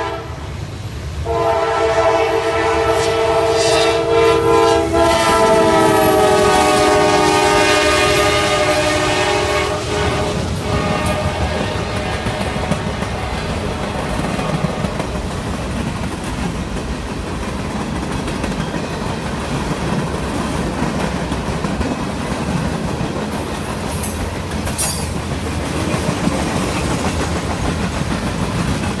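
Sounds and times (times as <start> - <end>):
train wheels clattering over rail joints: 10.5 - 29.0.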